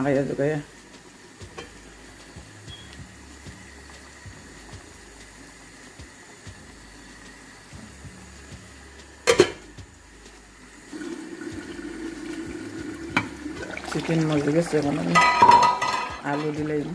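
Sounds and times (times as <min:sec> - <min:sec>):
curry bubbling in a frying pan: 0:00.0 - 0:16.9
metal lid clattering onto pan: 0:09.2 - 0:09.6, 0:15.1 - 0:16.6.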